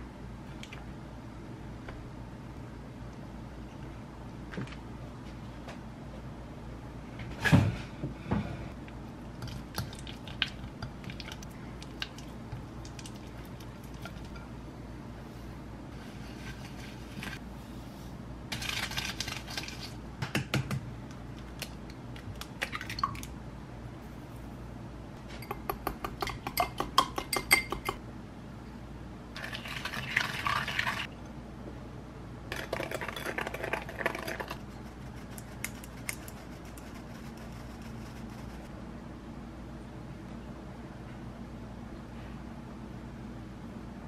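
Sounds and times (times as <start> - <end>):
whisk clinking against glass: 25.4 - 28.0.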